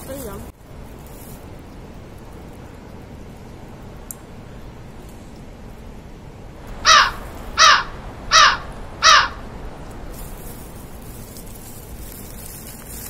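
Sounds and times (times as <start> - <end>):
crow cawing: 6.8 - 9.5.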